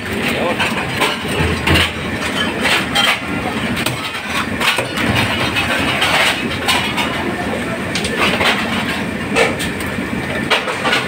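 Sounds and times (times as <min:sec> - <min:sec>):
knocks and clatter: 0:00.2 - 0:07.2.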